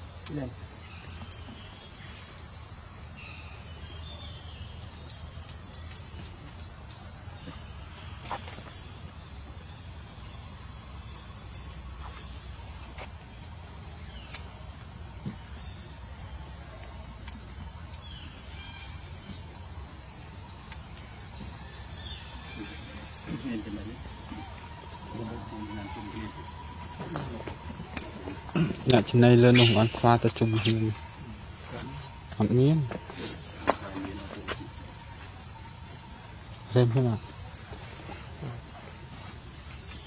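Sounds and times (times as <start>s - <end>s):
high-pitched insect drone: 0.0s - 40.0s
bird chirps: 20.6s - 34.8s.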